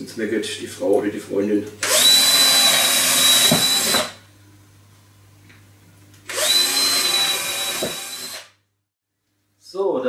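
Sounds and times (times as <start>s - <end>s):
cordless drill boring through wood: 1.8s - 4.2s, 6.3s - 8.6s.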